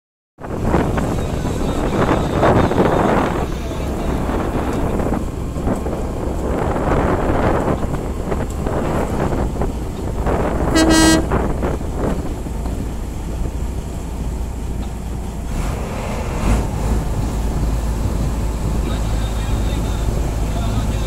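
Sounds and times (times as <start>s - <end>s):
boat engine rumble: 0.4s - 21.0s
wind on microphone: 0.4s - 21.0s
boat horn toot: 10.6s - 11.6s.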